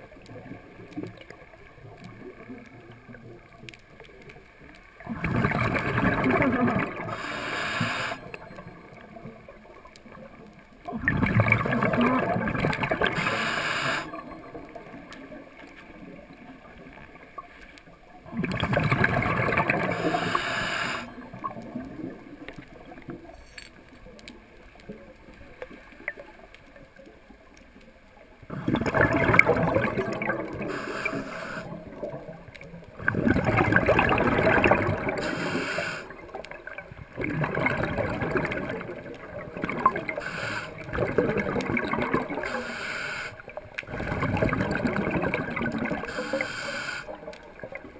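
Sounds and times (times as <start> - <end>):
rush of exhaled bubbles: 5.0 - 8.5, 10.9 - 16.8, 18.2 - 23.3, 28.5 - 47.9
diver breathing through a regulator: 6.8 - 8.4, 12.9 - 14.2, 19.8 - 21.2, 30.4 - 31.8, 35.0 - 36.2, 40.0 - 41.2, 42.4 - 44.6, 45.9 - 47.3.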